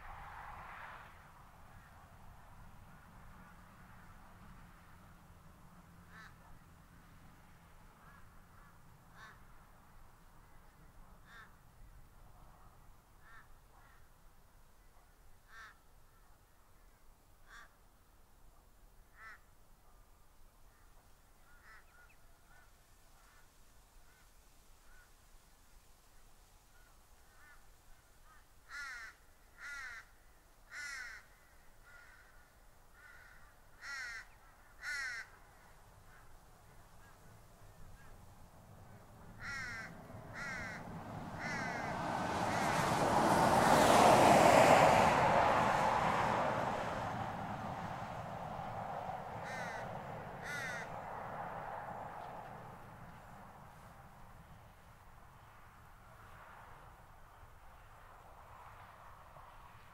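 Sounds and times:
vehicle passing: 0.0s - 11.4s, 35.9s - 59.9s.

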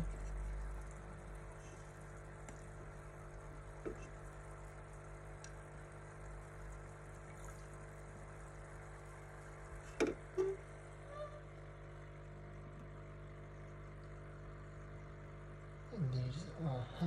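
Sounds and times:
water trickling: 0.0s - 11.0s
aquarium filter humming: 0.0s - 17.0s.

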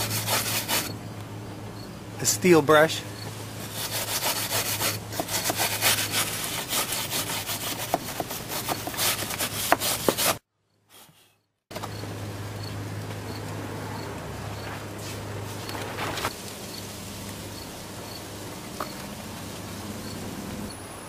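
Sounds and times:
wire brush scratching wood: 0.0s - 0.9s, 3.5s - 10.4s
steady low hum: 0.0s - 9.0s.

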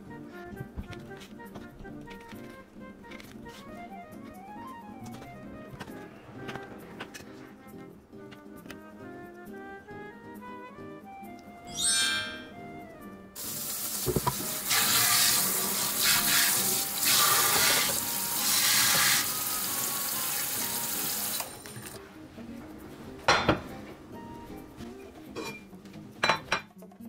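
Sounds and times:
tap water splashing into wooden tub: 13.9s - 15.4s.

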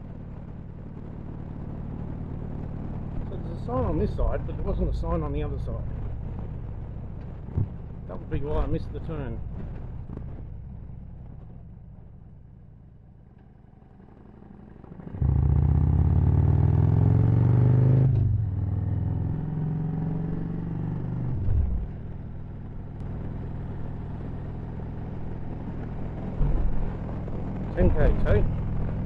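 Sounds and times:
motorcycle engine revving: 14.0s - 29.0s.

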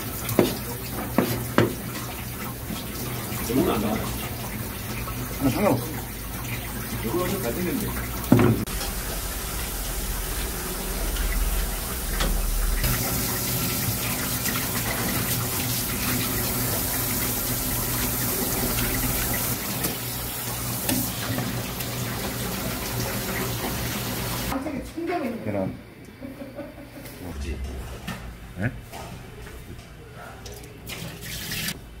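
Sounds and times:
tap water running: 0.0s - 24.6s, 30.5s - 31.8s.

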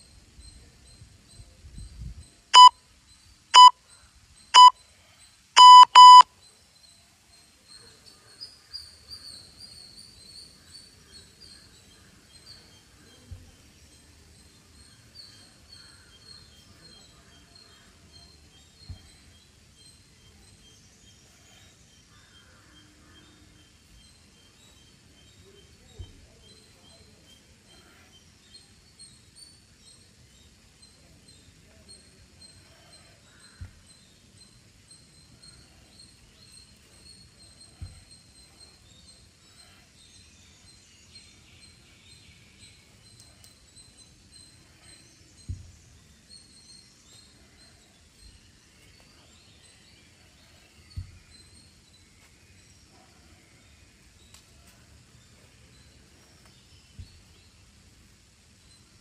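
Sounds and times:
faint bird chirping: 0.0s - 59.0s
long electronic beep: 2.6s - 2.8s, 3.6s - 3.8s, 4.6s - 4.8s, 5.6s - 6.3s
short electronic beeps: 2.6s - 2.8s, 3.6s - 3.8s, 4.6s - 4.8s, 5.6s - 6.3s.

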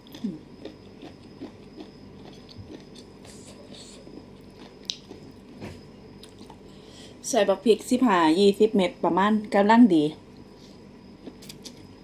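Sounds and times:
person chewing wet crunchy food: 0.0s - 6.7s, 10.4s - 12.0s.

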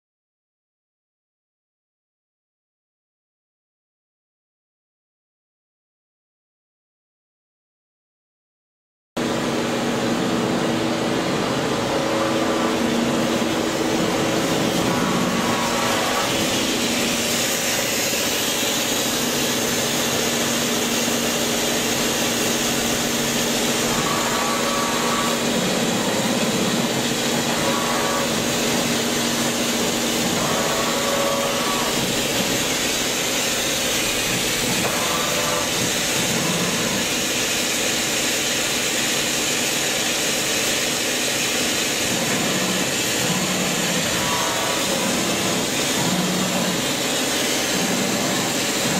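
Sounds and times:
brief high machine whine: 9.2s - 37.8s, 39.5s - 48.9s
machine hum and hiss: 9.2s - 48.9s.

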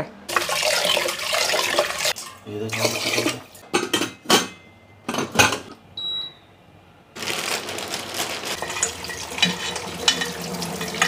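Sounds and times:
light clatter in colander: 8.6s - 11.0s
tap water hissing: 8.7s - 11.0s.

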